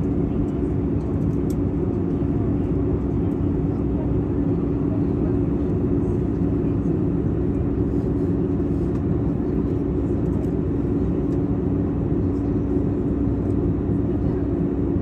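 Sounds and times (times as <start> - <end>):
jet airliner cabin rumble: 0.0 - 15.0.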